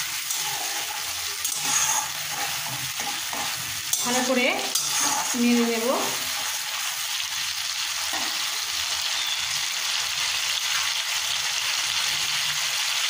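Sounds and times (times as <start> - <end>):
spatula stirring in metal pan: 0.0 - 7.1
tomatoes sizzling in hot oil: 0.0 - 13.0.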